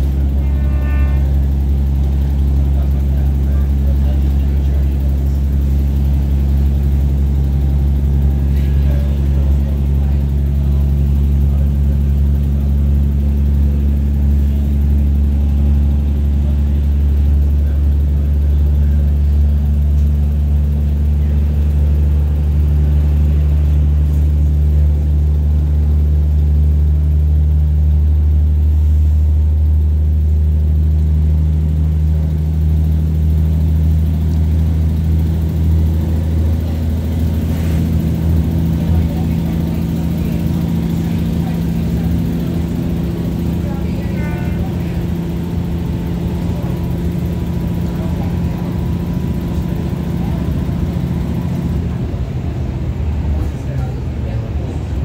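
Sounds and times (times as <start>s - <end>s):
train diesel engine drone: 0.0s - 55.0s.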